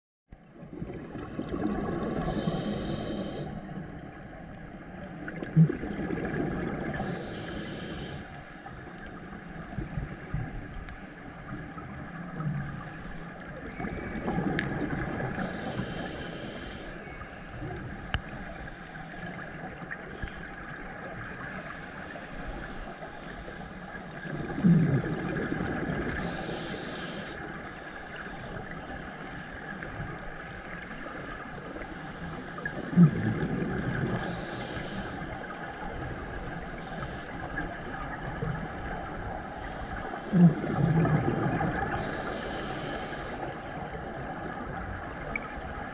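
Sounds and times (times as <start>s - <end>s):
hissing regulator inhalations: 2.2s - 3.8s, 6.9s - 9.1s, 15.3s - 20.6s, 26.2s - 28.6s, 34.2s - 35.4s, 36.2s - 37.4s, 41.9s - 43.6s.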